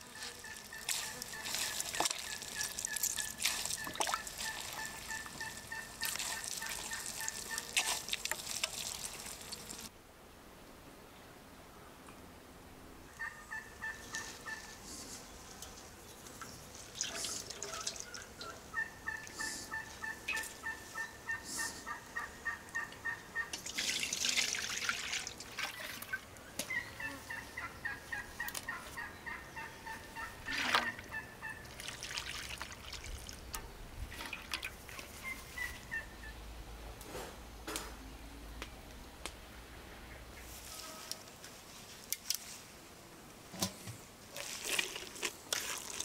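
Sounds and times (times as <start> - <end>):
fowl clucking: 0.2 - 7.7, 17.2 - 23.5, 26.6 - 31.6
liquid squeezed into a basin: 0.8 - 5.1, 6.0 - 9.9, 30.4 - 31.0, 31.7 - 33.4, 44.3 - 46.0.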